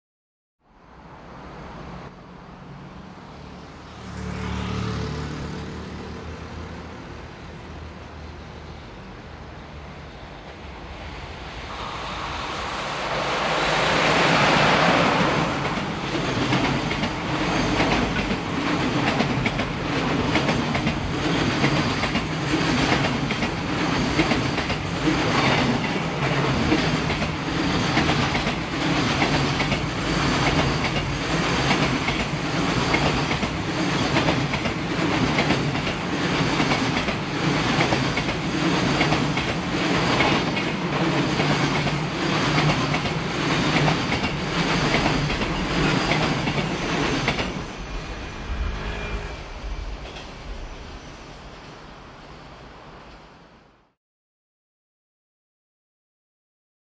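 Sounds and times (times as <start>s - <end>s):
locomotive passing at speed: 10.3s - 53.1s
wheels clickety-clack over rail joints: 14.1s - 48.0s.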